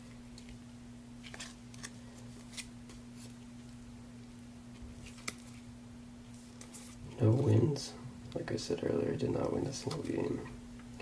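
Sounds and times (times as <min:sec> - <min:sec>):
steady low hum: 0:00.0 - 0:11.0
trading cards flicking and swishing: 0:05.0 - 0:05.7.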